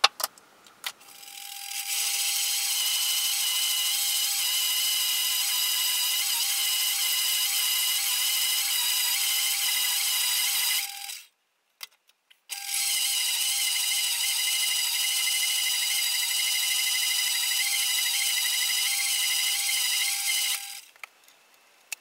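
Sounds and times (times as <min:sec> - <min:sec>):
bandsaw cutting metal: 0:12.5 - 0:20.9.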